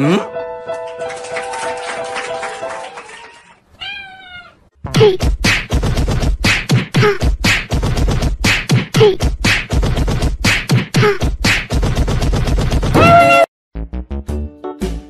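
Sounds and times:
fast beatbox-style beat: 4.9s - 12.9s.

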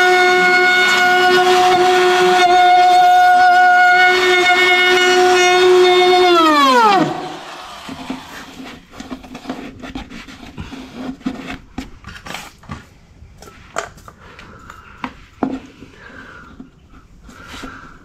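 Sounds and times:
router set down: 6.5s - 8.6s.

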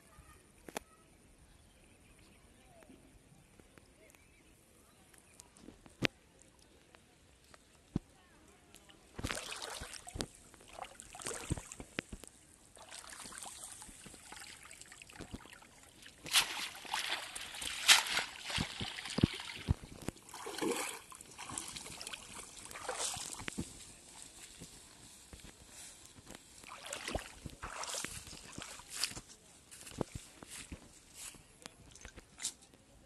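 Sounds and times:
shallow water splashing: 9.2s - 12.0s, 12.7s - 24.1s, 26.5s - 29.1s
water running off net: 12.8s - 23.7s, 26.6s - 28.9s
net rustling on grass: 16.1s - 31.4s.

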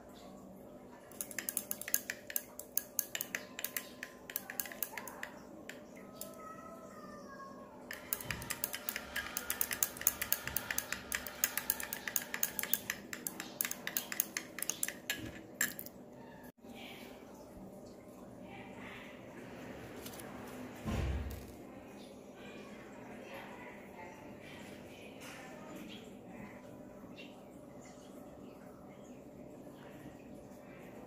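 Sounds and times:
metal rod clinking against beaker: 1.1s - 6.3s, 7.9s - 16.0s.

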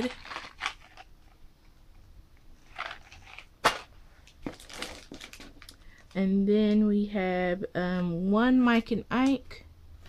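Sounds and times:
plastic wrappers crinkling: 0.0s - 1.1s, 2.6s - 6.2s.

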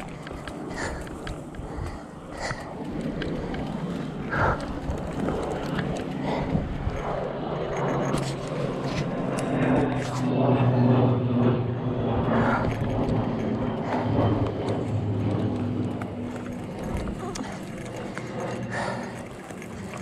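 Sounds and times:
low engine drone: 0.0s - 20.0s.

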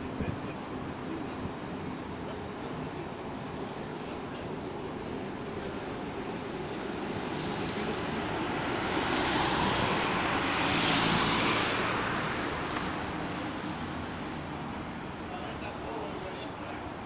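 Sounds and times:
road traffic: 0.0s - 17.0s
train crossing viaduct: 0.0s - 17.0s
car passing close: 6.9s - 14.4s.

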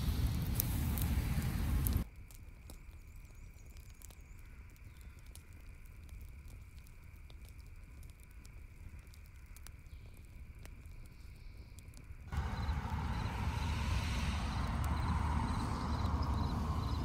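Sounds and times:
low steady rumble: 0.0s - 2.1s, 12.3s - 17.0s
pops and crackles: 0.0s - 12.9s
meat sizzling over charcoal: 0.0s - 17.0s.

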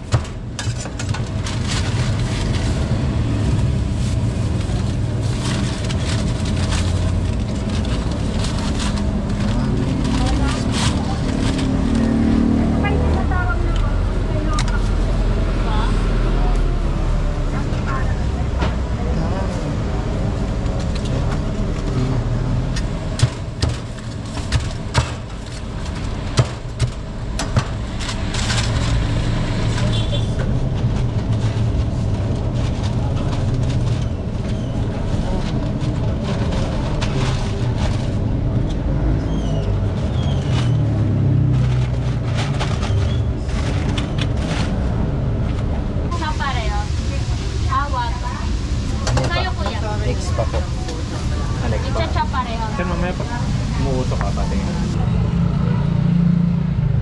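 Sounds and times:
low engine rumble: 0.0s - 57.0s
plastic bag crinkling: 1.2s - 12.1s.

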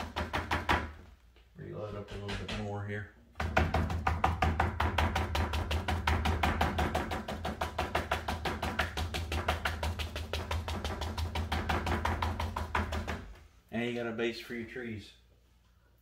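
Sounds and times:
brush tapping on canvas: 3.4s - 13.4s.

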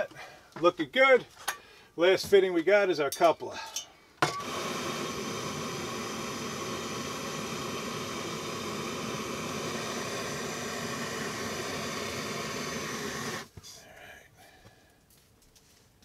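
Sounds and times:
gas torch hissing: 4.3s - 13.6s.

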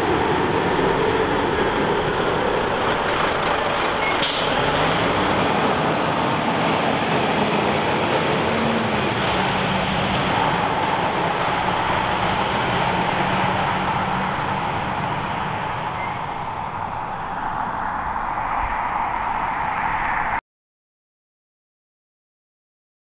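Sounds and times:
fire engine diesel engine: 0.0s - 20.4s
short air hiss: 4.2s - 4.6s.

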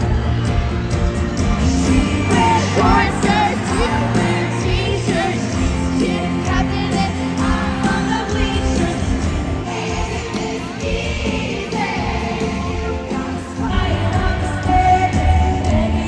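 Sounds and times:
live pop band playing: 0.0s - 16.0s
woman singing into a microphone: 13.6s - 16.0s.

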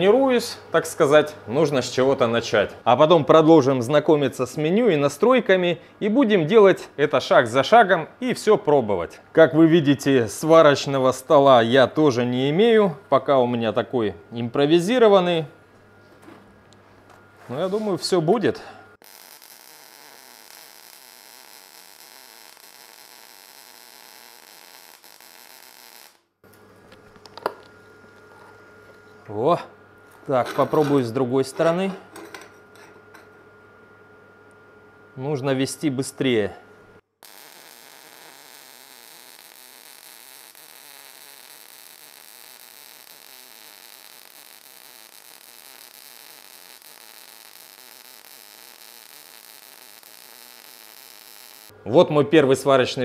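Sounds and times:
welding arc hissing crackle: 19.0s - 26.5s, 37.2s - 51.8s.

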